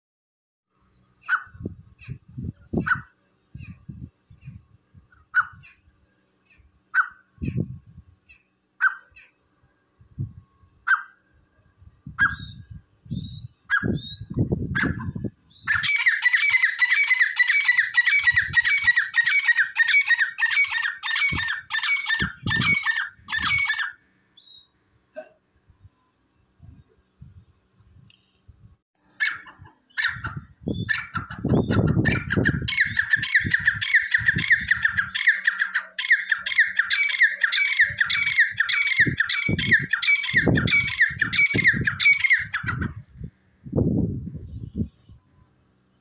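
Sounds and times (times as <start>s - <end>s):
francolins calling: 14.8s - 24.7s, 29.2s - 43.0s.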